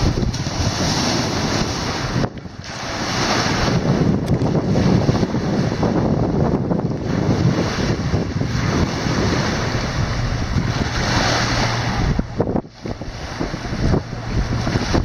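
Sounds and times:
waves splashing against bank: 0:00.0 - 0:15.0
wind buffeting microphone: 0:00.0 - 0:15.0.

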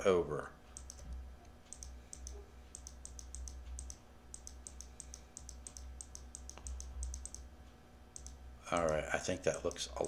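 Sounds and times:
low steady hum: 0:00.0 - 0:10.0
mouse button clicking: 0:01.7 - 0:07.4.

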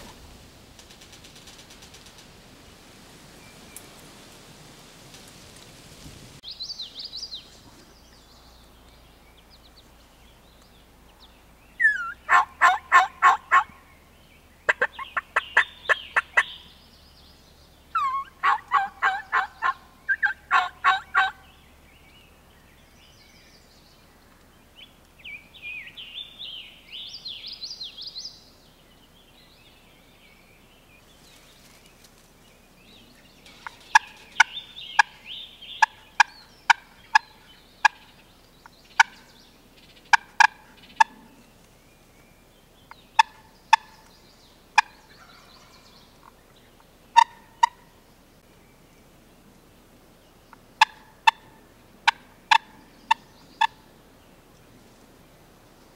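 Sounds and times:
turkey call cutts: 0:11.8 - 0:13.7, 0:18.0 - 0:21.4, 0:33.5 - 0:38.2, 0:40.1 - 0:41.3, 0:43.1 - 0:44.1, 0:47.1 - 0:47.8, 0:50.5 - 0:53.8
turkey call yelps: 0:11.8 - 0:13.7, 0:14.7 - 0:16.6, 0:17.9 - 0:21.4, 0:35.8 - 0:38.1, 0:40.1 - 0:41.2, 0:43.2 - 0:44.0, 0:47.2 - 0:47.9, 0:50.8 - 0:53.8.

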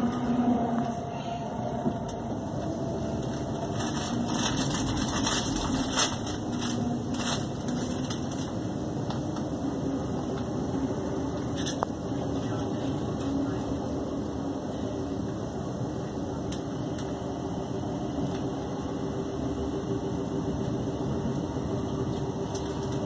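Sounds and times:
low hum: 0:00.0 - 0:15.4
train wheels rumbling on rails: 0:00.0 - 0:23.0.

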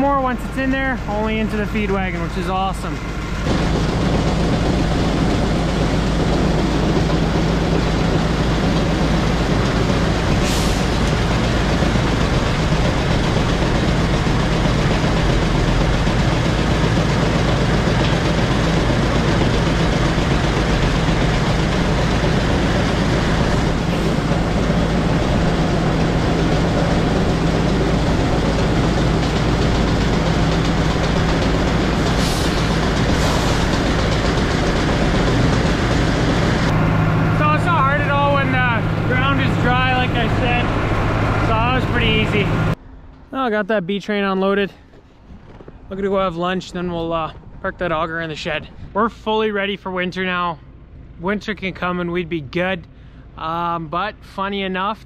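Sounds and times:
grain auger humming: 0:00.0 - 0:42.8
tractor engine running: 0:00.0 - 0:43.2.

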